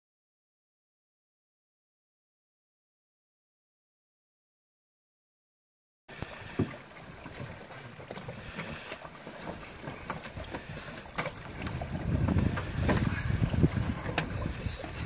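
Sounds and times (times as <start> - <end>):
water moving around legs: 6.1 - 15.0
canoe hull scraping on sticks: 6.3 - 15.0
wind rumbling on microphone: 8.4 - 15.0.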